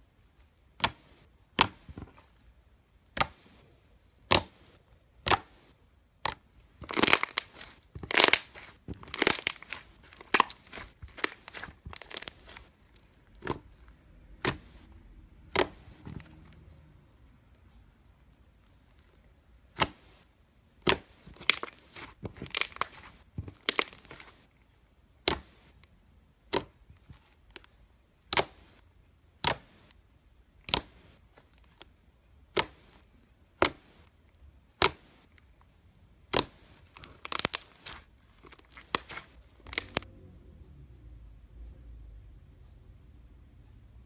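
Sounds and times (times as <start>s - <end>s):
slime popping and crackling: 6.2s - 14.8s, 20.8s - 24.5s, 30.6s - 34.1s, 36.2s - 40.1s.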